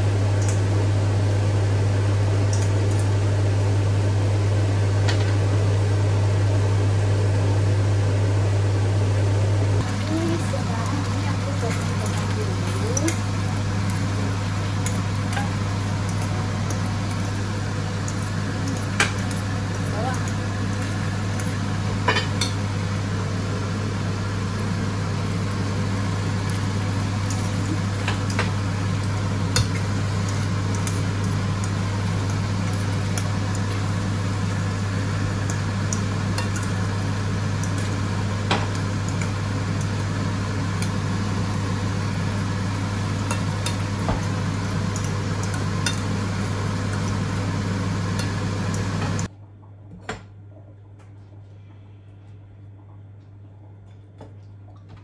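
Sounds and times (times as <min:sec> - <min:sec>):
steady low hum: 0:00.0 - 0:55.0
food sizzling in pans: 0:09.8 - 0:49.3.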